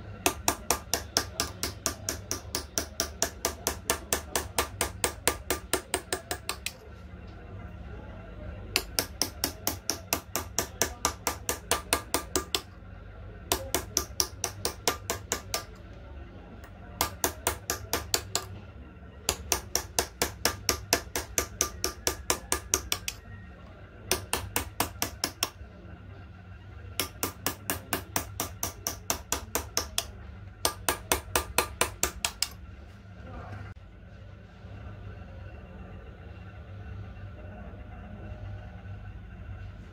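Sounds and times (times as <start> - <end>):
hammer tapping steel chisel on brass: 0.2 - 6.8, 8.8 - 12.7, 13.5 - 15.8, 17.0 - 18.6, 19.3 - 23.2, 24.1 - 25.6, 27.0 - 32.6.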